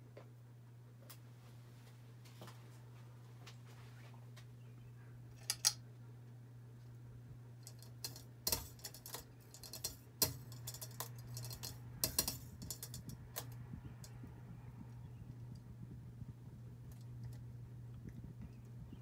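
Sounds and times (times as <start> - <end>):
ceiling fan motor hum: 0.0 - 19.0
sharp clicks and ticks: 7.7 - 18.8.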